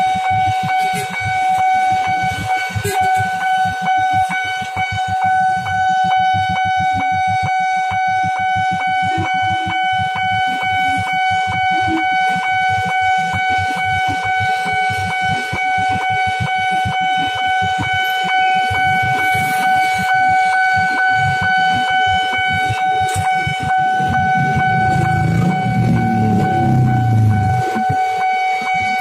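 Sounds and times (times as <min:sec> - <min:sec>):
level-crossing alarm tone pulsing: 0:00.0 - 0:29.0
motorcycle engines idling: 0:23.1 - 0:27.8.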